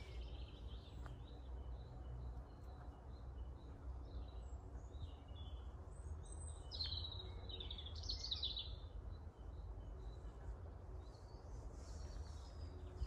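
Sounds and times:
songbirds singing: 0.0 - 13.0.

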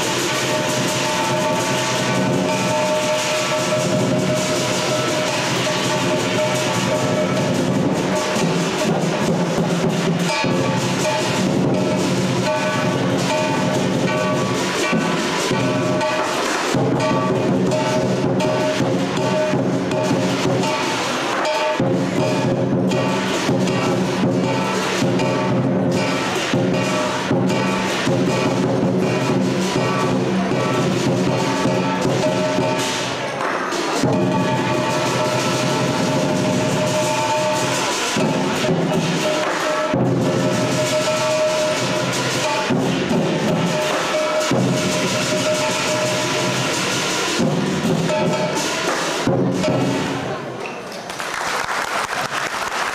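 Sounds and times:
gong ringing: 0.0 - 33.1
cymbals crashing: 0.0 - 50.6
drums and clacking percussion: 0.0 - 52.9.

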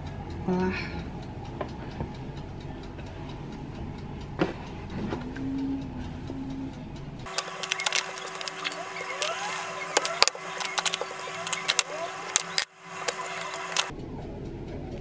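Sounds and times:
steady low hum: 0.0 - 14.8
short rising squeaks: 7.3 - 13.9.

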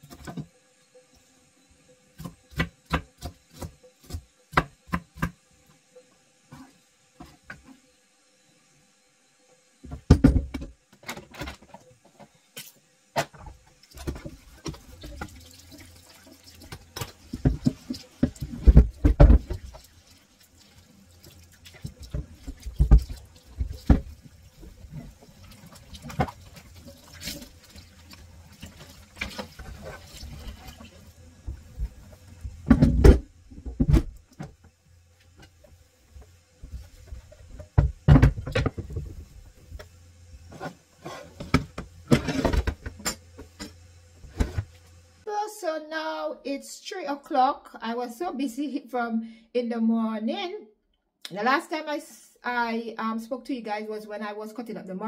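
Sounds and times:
tap water running: 13.1 - 45.2.

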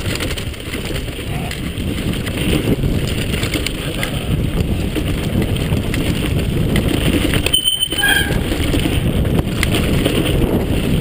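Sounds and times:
bike tyres rumbling on dirt: 0.0 - 11.0
wind noise on microphone: 0.0 - 11.0.

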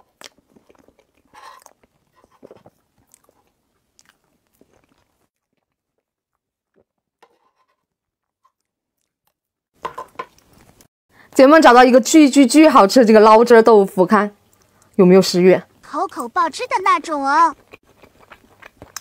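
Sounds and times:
mouth noises and lip smacks: 17.6 - 19.0.

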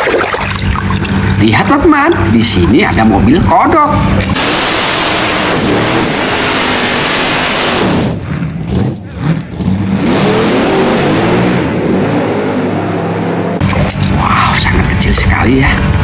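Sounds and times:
race car engines revving: 0.7 - 16.0.

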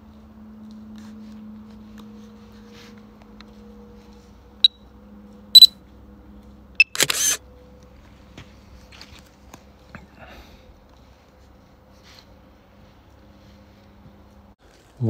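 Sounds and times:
camera shutter sound: 6.8 - 7.4.

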